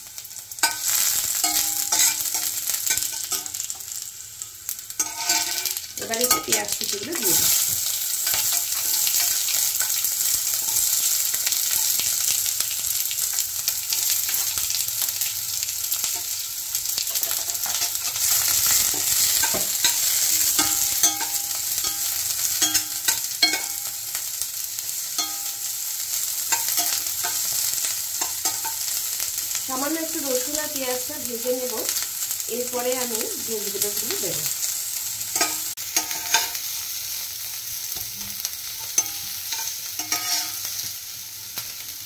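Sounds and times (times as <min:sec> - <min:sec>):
onion and garlic sizzling in oil: 0:00.0 - 0:42.0
utensil scraping a pan: 0:05.0 - 0:10.0, 0:17.1 - 0:23.7, 0:35.4 - 0:36.9, 0:38.2 - 0:40.8.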